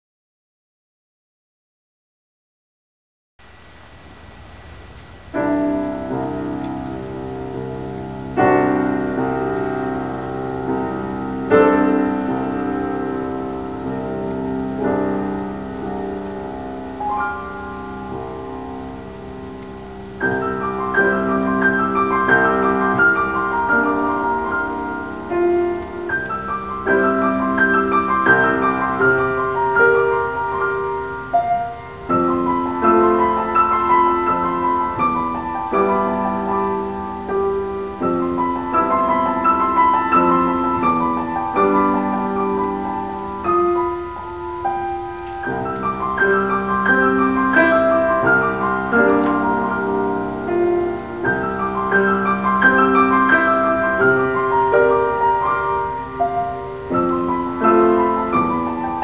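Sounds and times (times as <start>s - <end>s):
solo grand piano: 3.4s - 59.0s.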